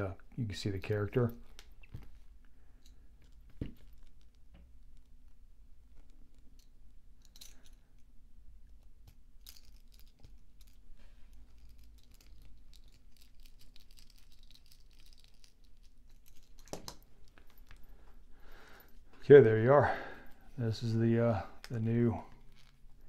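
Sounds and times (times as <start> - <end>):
low steady hum: 0.0 - 23.0
small handling clicks and rustles: 0.2 - 19.6, 20.2 - 23.0.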